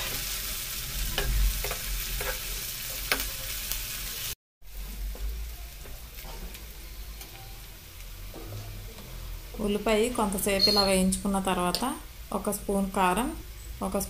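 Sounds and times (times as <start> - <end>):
spatula scraping pan: 0.0 - 3.4
onions sizzling in oil: 0.0 - 14.0.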